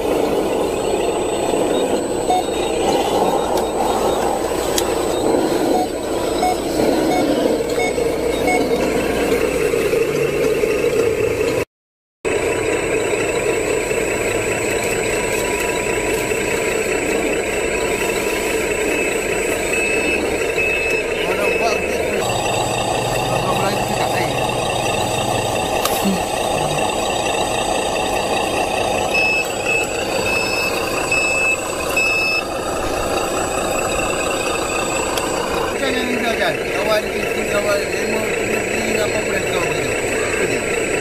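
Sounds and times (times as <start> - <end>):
faint beeps: 0.8 - 9.6, 17.7 - 40.8.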